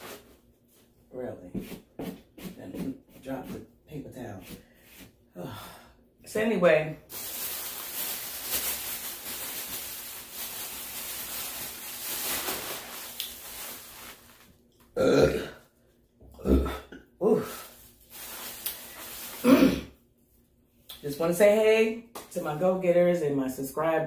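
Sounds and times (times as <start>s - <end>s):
plastic bag rustling: 0.0s - 0.8s, 7.1s - 14.7s, 17.6s - 19.8s
loud burps: 15.0s - 15.6s, 16.3s - 17.1s.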